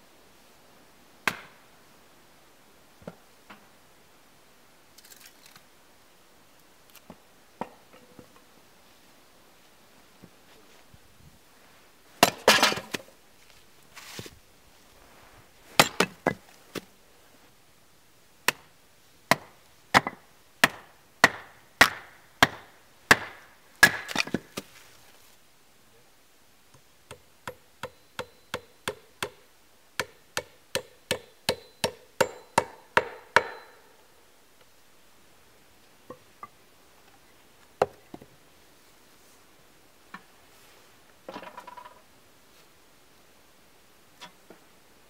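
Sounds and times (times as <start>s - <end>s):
hatchet chopping wood: 1.2s - 1.6s, 12.2s - 13.0s, 15.8s - 16.4s, 18.4s - 18.7s, 19.3s - 24.6s, 27.1s - 29.4s, 30.0s - 33.8s.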